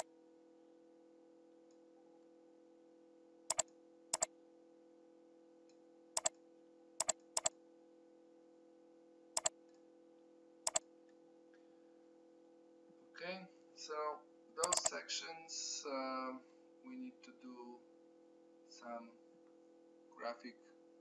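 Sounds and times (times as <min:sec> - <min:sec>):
faint steady hum: 0:00.0 - 0:21.0
mouse button clicks: 0:14.6 - 0:14.9.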